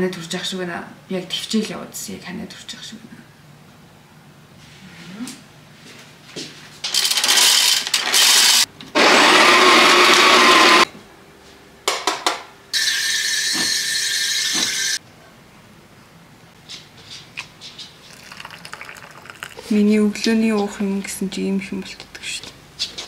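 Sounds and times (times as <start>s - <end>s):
water running from tap: 18.1s - 19.7s.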